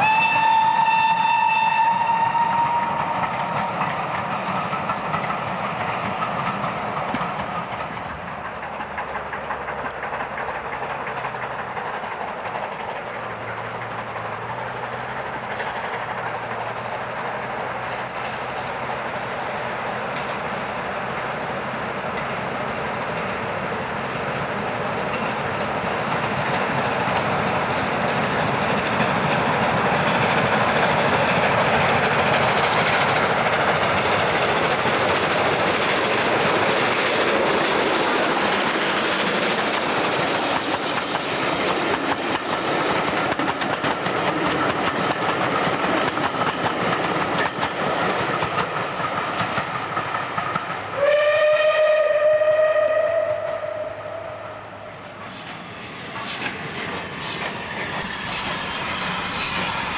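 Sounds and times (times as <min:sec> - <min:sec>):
steam whistle: 0:00.0 - 0:03.6, 0:51.0 - 0:54.8
steam train passing: 0:00.0 - 0:59.9
wheels clicking on rails: 0:02.5 - 0:51.0, 0:54.7 - 0:59.9.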